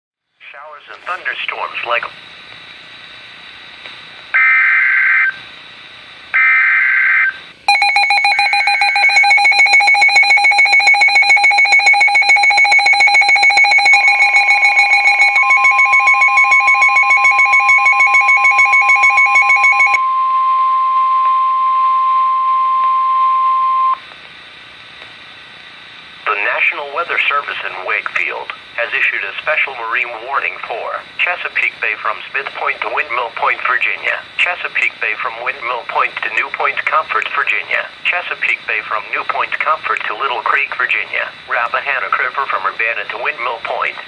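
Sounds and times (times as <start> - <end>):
rapidly pulsing electronic alarm: 4.3 - 5.5, 6.3 - 20.9
steady warning alarm tone: 4.4 - 5.4, 6.3 - 24.0.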